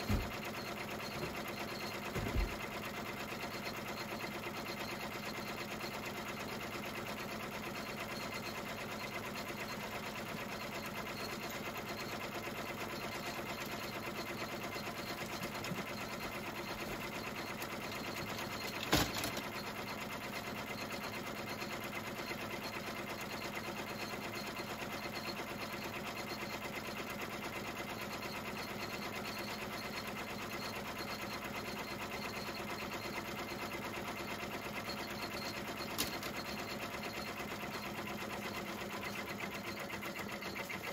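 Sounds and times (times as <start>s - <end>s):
embroidery machine stitching: 0.0s - 40.9s.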